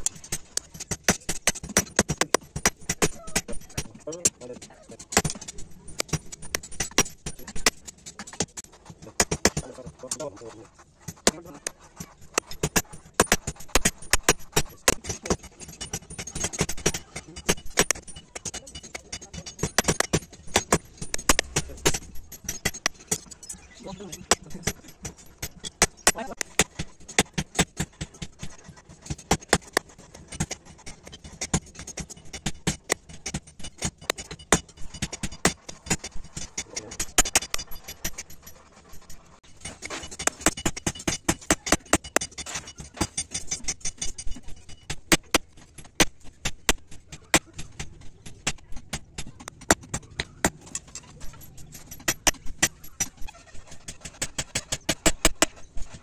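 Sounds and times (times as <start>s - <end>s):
hammers clanking on anvil: 0.0s - 10.3s, 11.0s - 56.0s.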